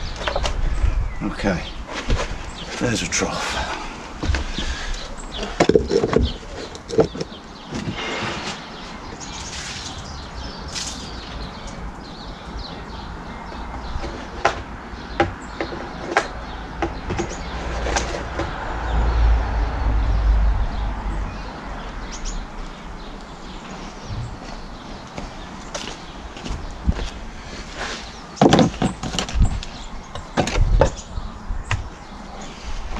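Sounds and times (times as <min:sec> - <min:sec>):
plant pots knocking and clattering: 0:02.0 - 0:08.6, 0:13.5 - 0:18.6, 0:28.4 - 0:31.1
low rumble: 0:18.2 - 0:22.1, 0:24.0 - 0:24.4.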